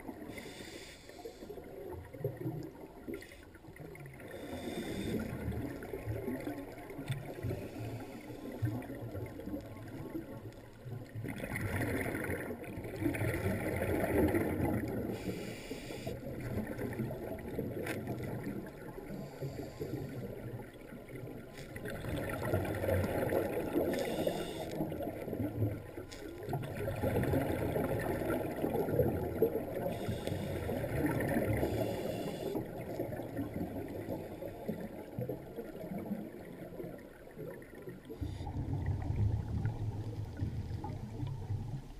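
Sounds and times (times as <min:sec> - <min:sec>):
regulator bubbles underwater: 0:00.0 - 0:41.9
soft hissing: 0:00.2 - 0:01.9, 0:03.1 - 0:05.6, 0:07.2 - 0:08.8, 0:15.1 - 0:16.2, 0:23.8 - 0:24.9, 0:29.8 - 0:32.7.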